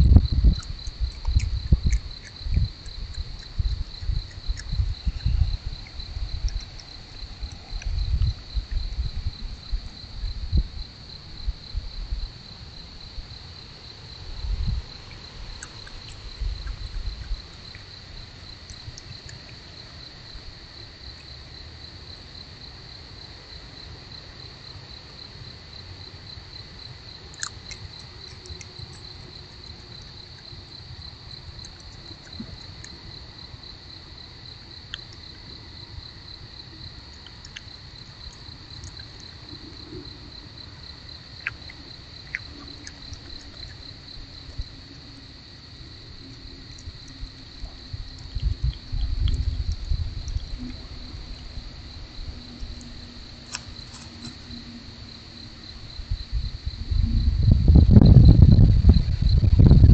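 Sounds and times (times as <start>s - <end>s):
fox chewing wood: 0.0s - 10.0s, 14.3s - 20.2s, 27.3s - 34.3s, 37.1s - 44.8s, 52.7s - 54.6s
night insects chirping: 0.0s - 59.9s.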